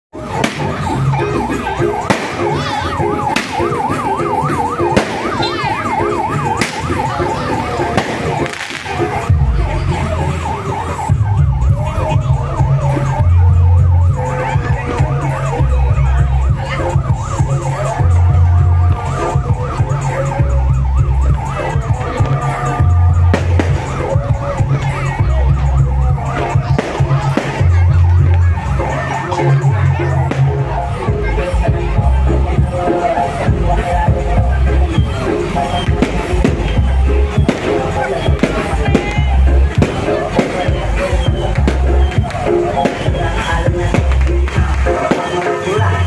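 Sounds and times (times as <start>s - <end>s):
ambulance siren warbling: 0.1s - 46.0s
heavy bass beats: 0.1s - 46.0s
sharp bangs: 0.2s - 9.7s, 22.2s - 24.3s, 35.0s - 45.8s.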